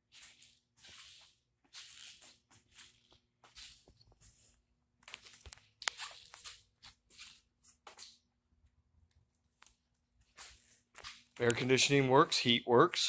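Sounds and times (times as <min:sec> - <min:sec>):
footsteps on concrete floor: 0:00.0 - 0:08.3, 0:09.6 - 0:12.6.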